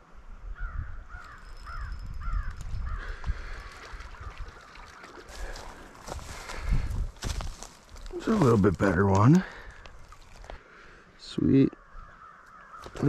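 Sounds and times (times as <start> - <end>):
crow cawing: 0.6 - 5.8, 11.8 - 13.0.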